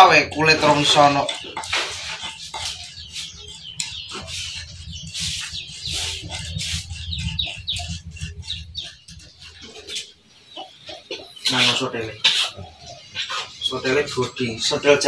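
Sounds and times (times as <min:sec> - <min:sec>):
birds chirping: 0:00.0 - 0:15.0
steady low rumble: 0:03.3 - 0:10.2.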